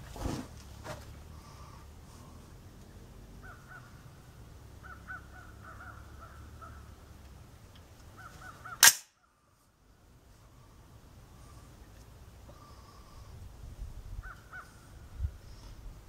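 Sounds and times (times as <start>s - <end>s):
crow-like caws: 3.4s - 7.0s, 8.2s - 8.9s, 14.2s - 15.0s
suppressed rifle shot: 8.8s - 9.2s.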